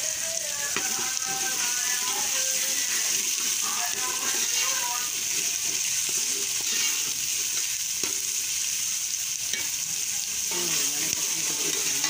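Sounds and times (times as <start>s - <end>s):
onions sizzling in pot: 0.0s - 12.0s.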